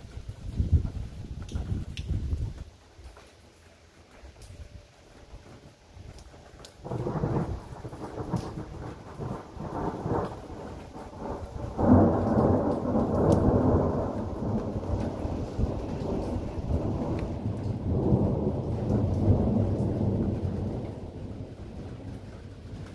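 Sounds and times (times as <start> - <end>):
rain falling: 0.0 - 22.9
thunder rumbling: 6.8 - 22.9.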